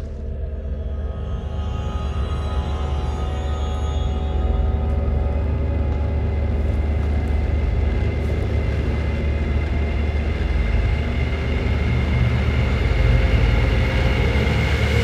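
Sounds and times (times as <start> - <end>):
dark film score drone: 0.0 - 15.0
heavy low rumble: 0.0 - 15.0.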